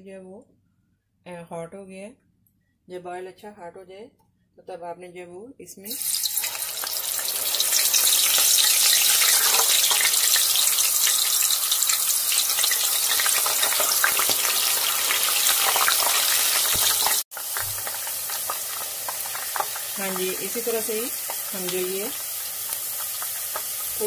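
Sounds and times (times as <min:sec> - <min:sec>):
potato slices sizzling in oil: 0:05.9 - 0:24.0.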